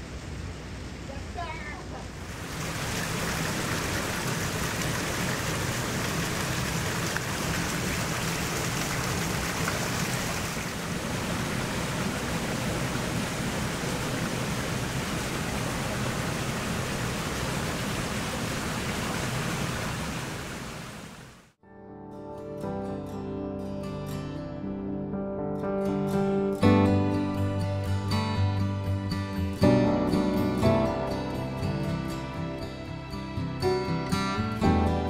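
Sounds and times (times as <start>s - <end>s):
stream water rushing: 0.0s - 21.5s.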